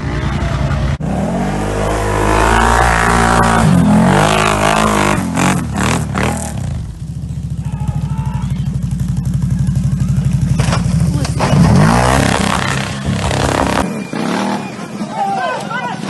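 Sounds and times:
atv engine revving: 0:00.0 - 0:15.1
engine chugging at low revs: 0:05.7 - 0:11.4.

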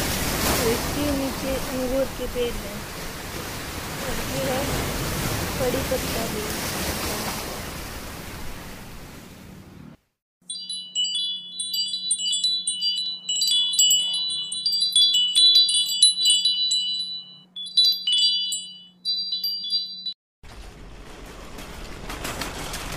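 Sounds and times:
twinkling chime tinkles: 0:10.4 - 0:20.2.

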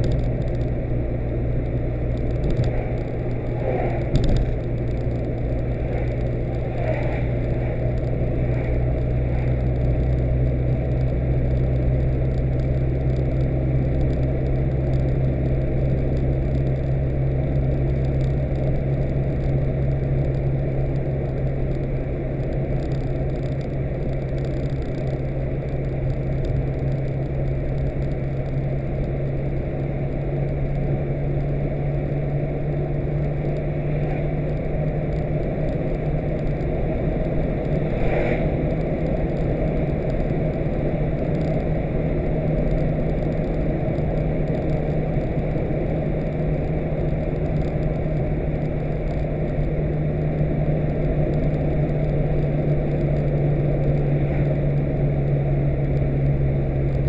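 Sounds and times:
car engine drone: 0:00.0 - 0:57.0
road and tyre noise: 0:00.0 - 0:57.0.

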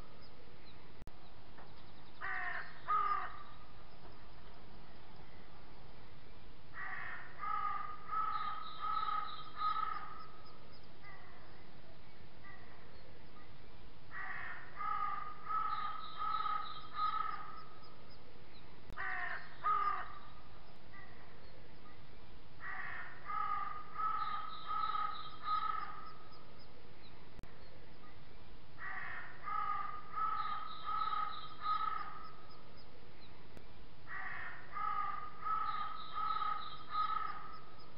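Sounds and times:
crows cawing: 0:02.2 - 0:03.6, 0:06.7 - 0:10.4, 0:14.1 - 0:17.8, 0:19.0 - 0:20.4, 0:22.6 - 0:26.3, 0:28.8 - 0:32.5, 0:34.1 - 0:37.7.

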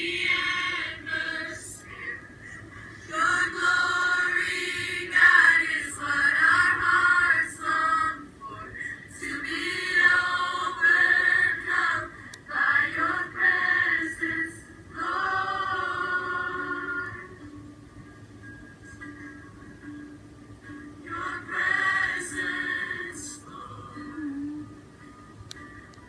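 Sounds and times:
crowd singing a worship song: 0:09.2 - 0:17.3.

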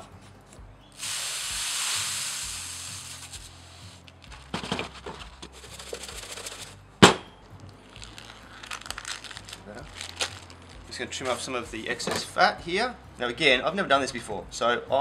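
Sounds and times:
granular spice pouring hiss: 0:01.0 - 0:04.2
shaker clicks and rattles: 0:01.9 - 0:06.8.

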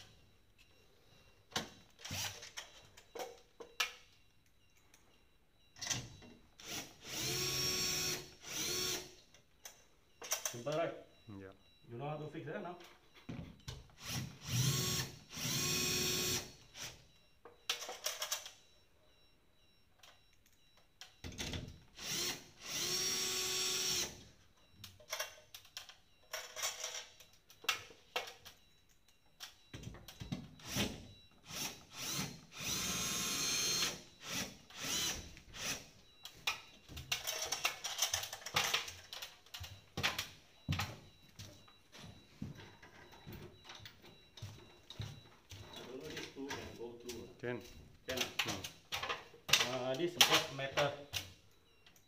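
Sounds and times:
cordless drill motor whining: 0:06.6 - 0:09.1, 0:14.0 - 0:17.0, 0:22.0 - 0:24.2, 0:31.4 - 0:35.9.

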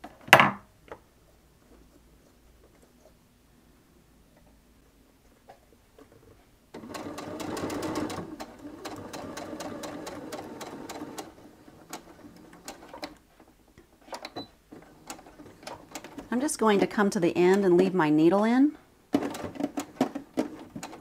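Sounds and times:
sewing machine stitching: 0:06.8 - 0:13.2, 0:14.0 - 0:16.4, 0:19.1 - 0:21.0.

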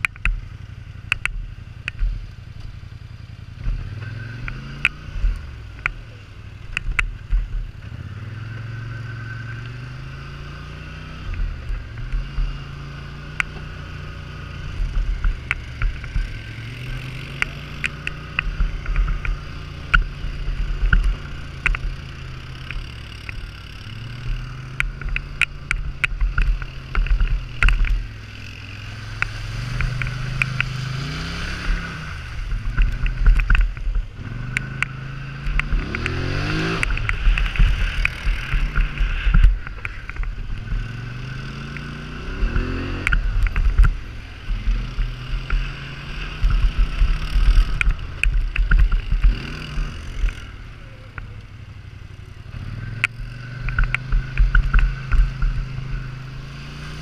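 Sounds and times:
atv engine revving: 0:00.0 - 0:57.0
sharp clicks and knocks: 0:01.0 - 0:02.8, 0:06.7 - 0:07.9, 0:14.6 - 0:51.4, 0:52.9 - 0:56.9.

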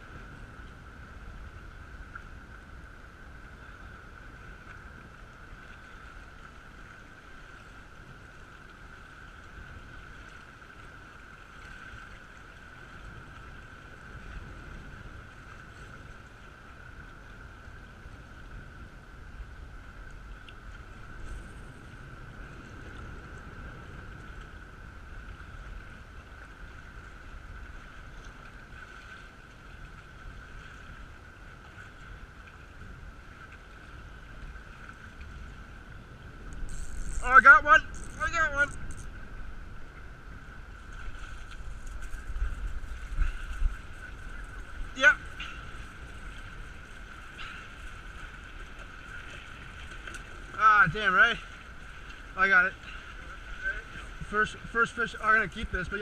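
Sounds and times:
wind and water on rocky shore: 0:00.0 - 0:56.0
thin high whine: 0:36.5 - 0:39.2.

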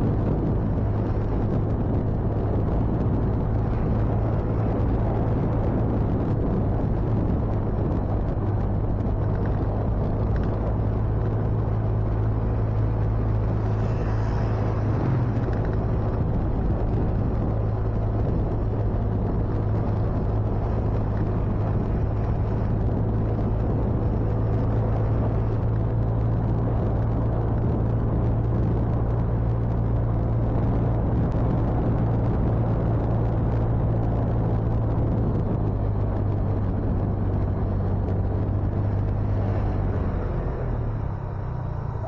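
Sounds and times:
motorcycle engine hum: 0:00.0 - 0:42.0
wind rumble on microphone: 0:00.0 - 0:42.0.

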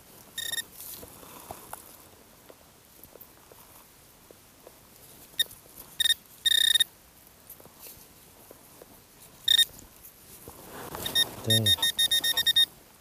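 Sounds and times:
metal detector beeps: 0:00.4 - 0:00.6, 0:05.4 - 0:06.9, 0:09.5 - 0:09.7, 0:11.0 - 0:12.7.

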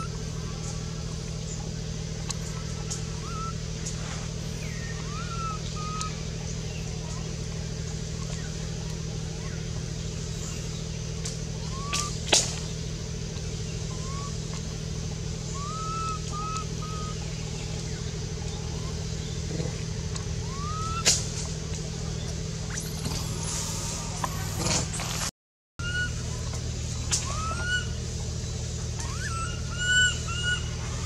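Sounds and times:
low motor hum: 0:00.0 - 0:31.0
short high chirping calls: 0:04.6 - 0:06.2.

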